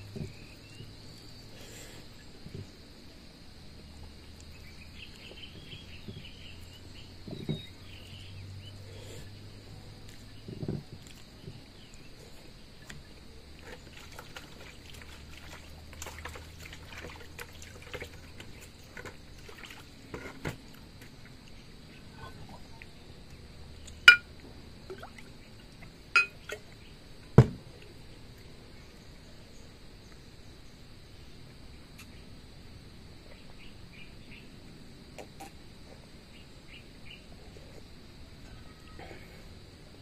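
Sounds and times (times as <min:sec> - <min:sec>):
high insect drone: 0:00.0 - 0:40.0
water pouring from pitcher: 0:13.6 - 0:20.3
glass clinks: 0:24.1 - 0:24.3, 0:26.2 - 0:26.4.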